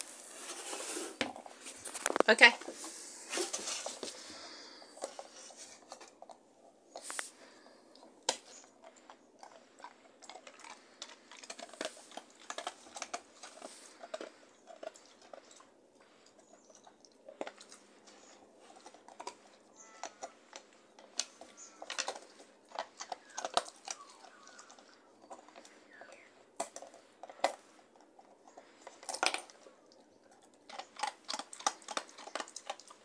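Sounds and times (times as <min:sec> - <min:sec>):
dog chewing and licking toy: 0:01.2 - 0:33.0
teeth clicking on rubber: 0:28.6 - 0:33.0.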